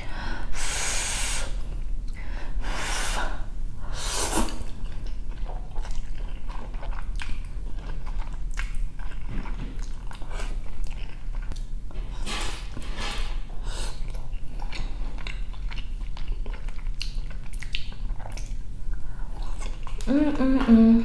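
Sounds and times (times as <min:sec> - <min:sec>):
chewing with small clicks: 0:04.8 - 0:11.8, 0:14.0 - 0:20.1.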